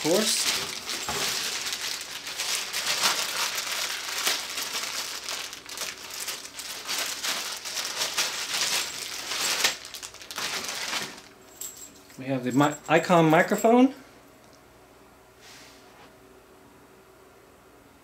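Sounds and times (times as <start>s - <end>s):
plastic packaging crinkling: 0.0s - 11.4s.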